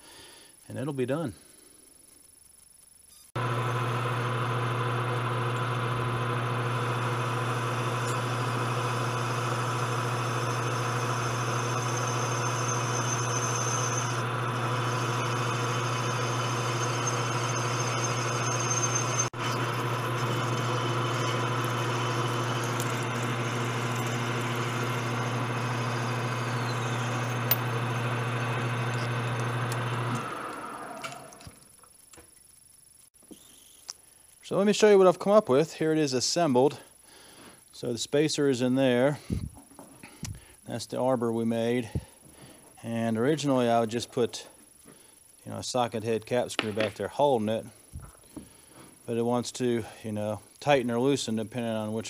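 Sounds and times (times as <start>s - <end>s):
metal lathe motor hum: 3.4s - 31.6s.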